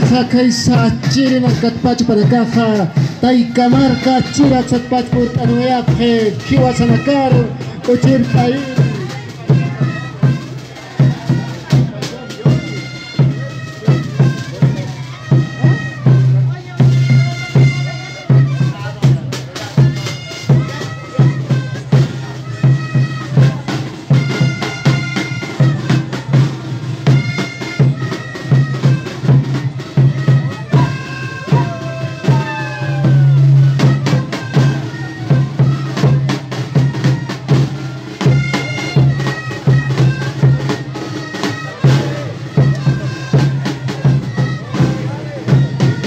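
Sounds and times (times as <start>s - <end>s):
drum beats: 0.0s - 46.0s
reedy flutes playing in unison: 0.0s - 46.0s.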